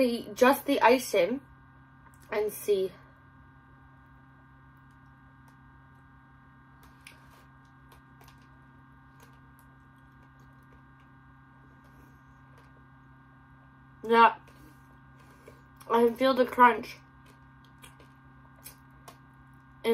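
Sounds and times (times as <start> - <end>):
electrical hum: 0.0 - 19.9
popping candy crackling: 6.8 - 11.2.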